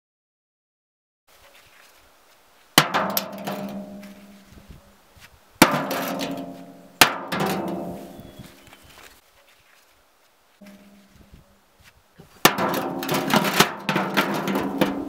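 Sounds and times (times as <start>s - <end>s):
bricks clanking in metal wheelbarrow: 2.8s - 4.3s, 5.6s - 8.4s, 12.4s - 15.0s.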